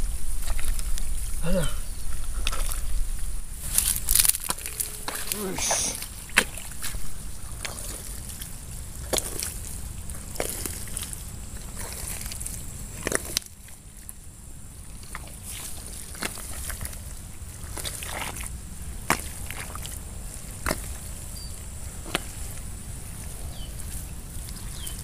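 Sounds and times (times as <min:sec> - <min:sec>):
hands squelching in wet mud: 0:00.0 - 0:13.8, 0:14.8 - 0:25.0
wet mud slaps and sloshes: 0:03.7 - 0:09.6, 0:15.0 - 0:17.0, 0:17.6 - 0:21.2, 0:22.0 - 0:22.6.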